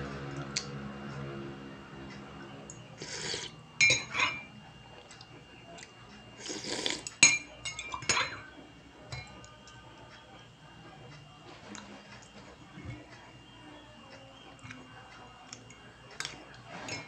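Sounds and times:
teaspoon clinking against ceramic mug: 3.8 - 4.5, 7.2 - 8.5.

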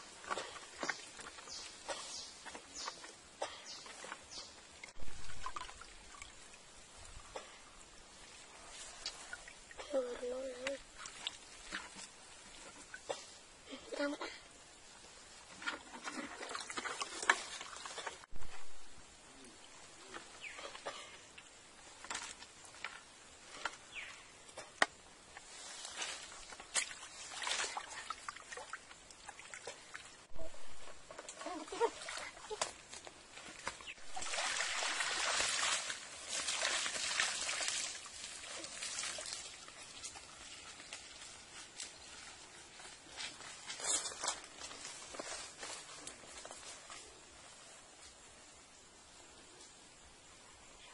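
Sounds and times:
water streaming and dripping: 0.0 - 13.7, 14.5 - 43.0
wet rustling and splashes: 25.5 - 30.2, 31.2 - 42.4
footsteps through grass: 32.8 - 48.2.

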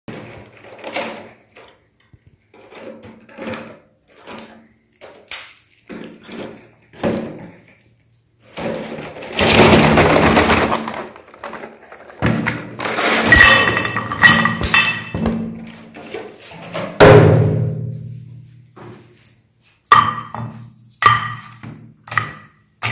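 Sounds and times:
plastic wrappers rustling: 5.0 - 14.2.

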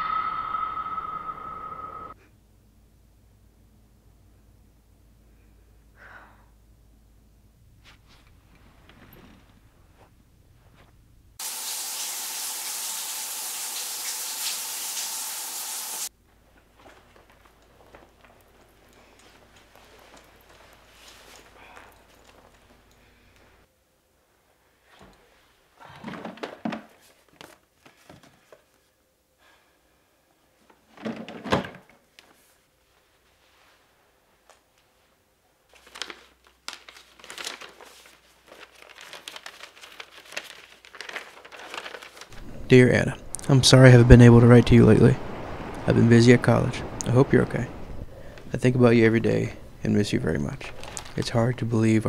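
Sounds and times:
hiss of spraying water: 11.4 - 16.1, 43.4 - 48.9.

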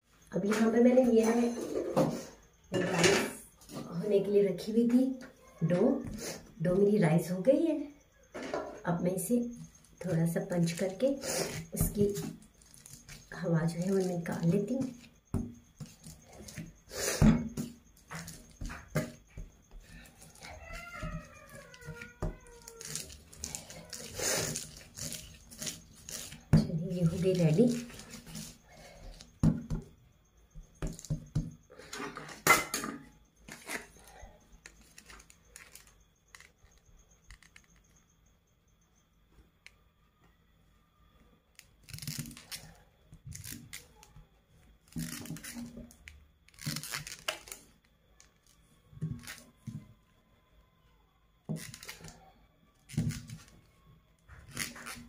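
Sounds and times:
dough squishing and patting: 9.8 - 31.6.

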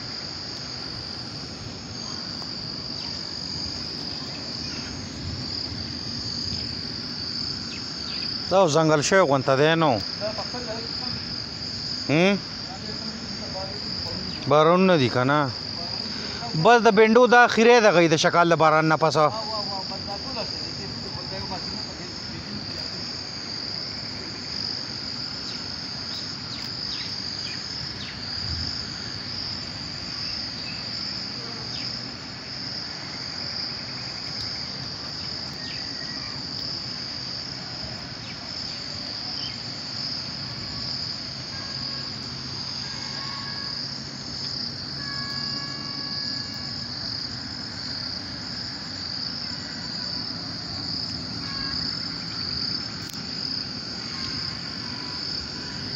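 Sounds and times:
insects calling chorus: 0.0 - 55.9.

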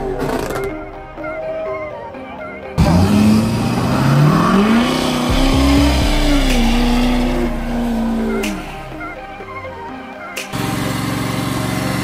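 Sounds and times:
vehicle engine revving: 2.8 - 9.3, 10.6 - 12.0.

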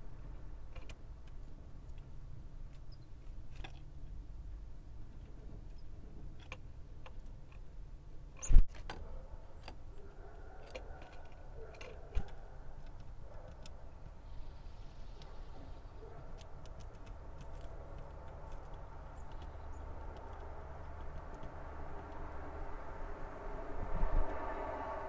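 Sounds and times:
bird pecking on wooden tray: 15.2 - 22.6.

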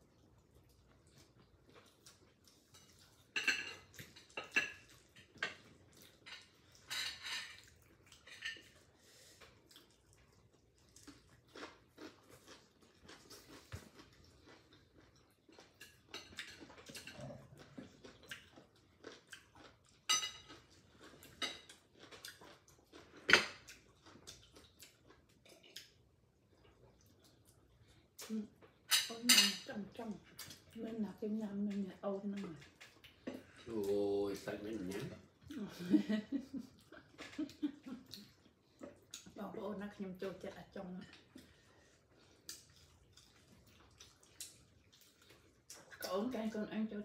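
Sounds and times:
chewing: 0.0 - 28.9, 29.7 - 35.7, 36.4 - 46.6
chopsticks clinking on dishes: 20.0 - 20.7.

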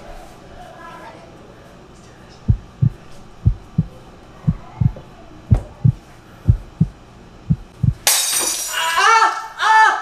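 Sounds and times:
heartbeat thumps: 2.5 - 8.0.

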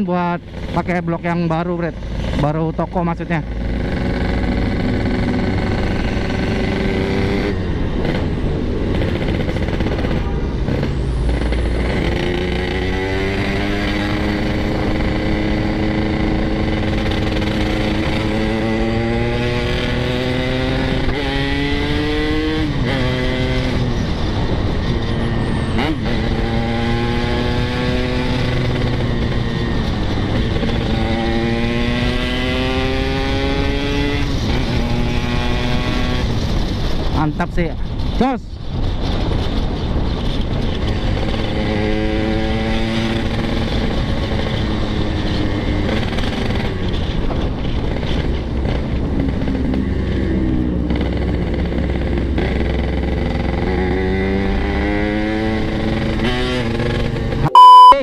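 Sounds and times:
motorcycle engine revving: 0.0 - 37.1, 39.2 - 57.9.

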